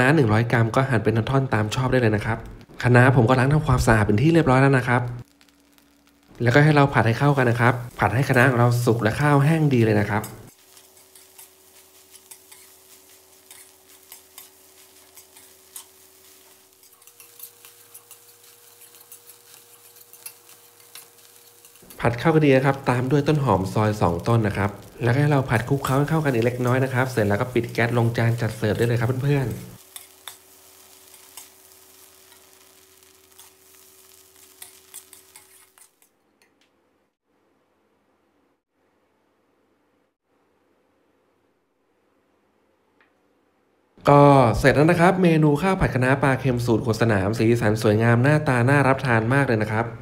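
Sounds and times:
faint sizzling: 0:00.0 - 0:36.7
metal spatula scraping wok: 0:10.1 - 0:23.2, 0:24.7 - 0:36.1
metal spatula clicking on pan: 0:18.8 - 0:21.1.

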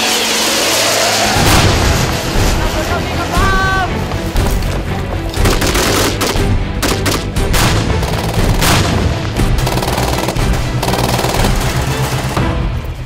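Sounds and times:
background music: 0:00.0 - 0:13.0
rifle gunshots: 0:05.4 - 0:12.3.

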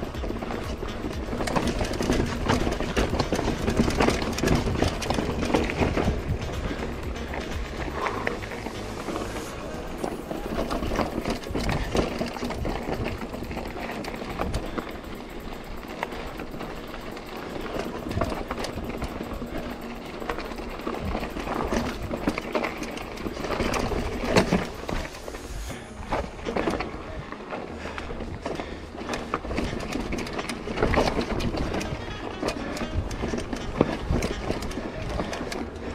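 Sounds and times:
bike rattling over rocks: 0:00.0 - 0:35.9
wind rumbling on microphone: 0:00.0 - 0:35.9
tyres crunching on loose stone: 0:00.2 - 0:25.3.

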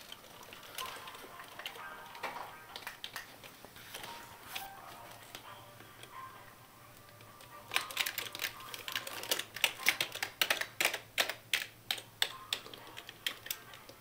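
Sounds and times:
computer keyboard keys clattering: 0:00.0 - 0:03.6, 0:07.7 - 0:14.0.

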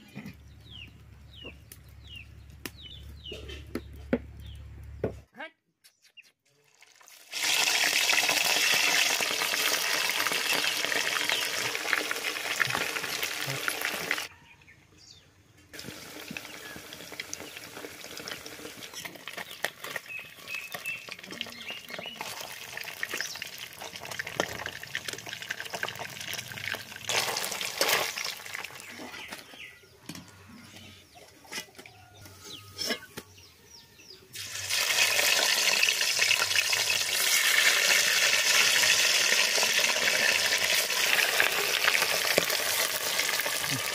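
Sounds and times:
fish sizzling in hot oil: 0:06.8 - 0:14.3, 0:15.8 - 0:28.8, 0:34.4 - 0:43.9.

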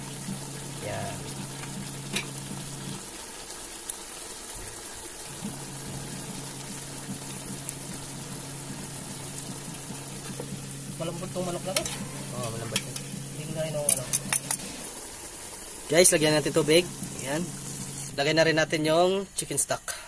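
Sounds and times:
steady low hum: 0:00.0 - 0:03.2, 0:05.2 - 0:15.7
chicken sizzling and bubbling in pot: 0:00.0 - 0:20.0.

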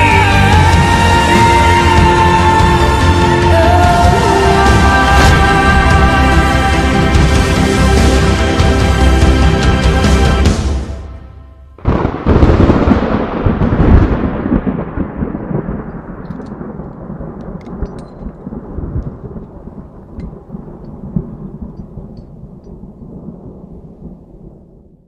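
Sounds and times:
music: 0:00.0 - 0:12.2
thunder crack and rolling rumble: 0:11.8 - 0:25.0.

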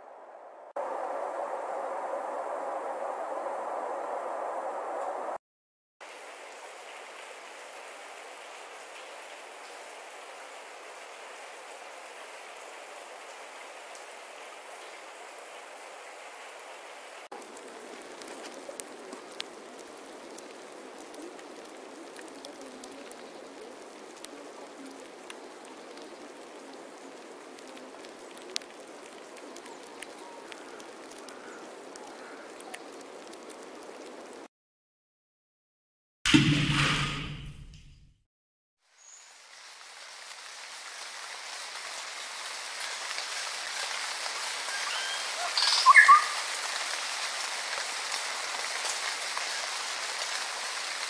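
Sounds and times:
steady hiss of rainfall: 0:00.7 - 0:05.4, 0:06.0 - 0:34.5, 0:38.8 - 0:51.0
rain drops hitting sharply: 0:06.0 - 0:34.5, 0:38.8 - 0:51.0.

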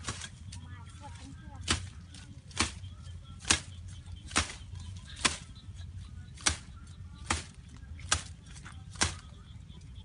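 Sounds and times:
bamboo stems snapping: 0:00.0 - 0:00.6, 0:01.6 - 0:02.8, 0:03.4 - 0:05.5, 0:06.4 - 0:09.3.

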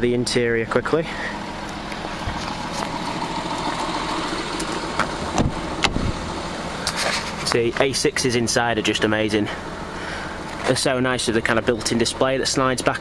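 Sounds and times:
diesel engine idling: 0:00.0 - 0:13.0
car door opening clicks: 0:04.6 - 0:06.0.

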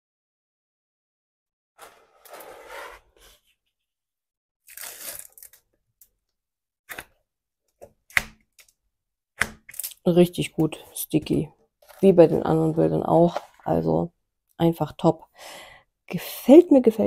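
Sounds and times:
plastic film peeling rustle: 0:04.7 - 0:05.6.

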